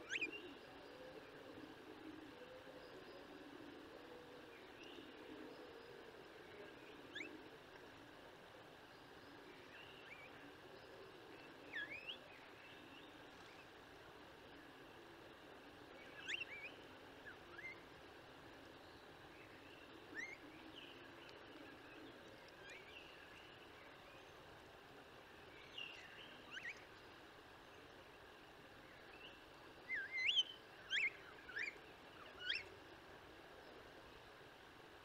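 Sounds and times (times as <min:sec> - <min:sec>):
faint background hiss: 0:00.0 - 0:35.0
starlings whistling calls: 0:29.9 - 0:32.7.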